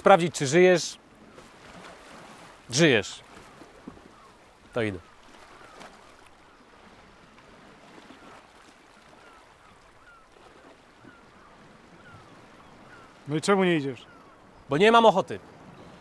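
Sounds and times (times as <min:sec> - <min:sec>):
sea washing: 0:00.0 - 0:16.0
short falling bird calls: 0:03.2 - 0:06.8, 0:08.1 - 0:14.7.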